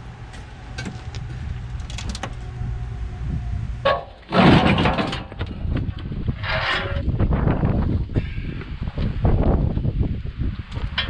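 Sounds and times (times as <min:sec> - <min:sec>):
hand truck scraping drag: 0:03.8 - 0:05.7, 0:06.3 - 0:07.2.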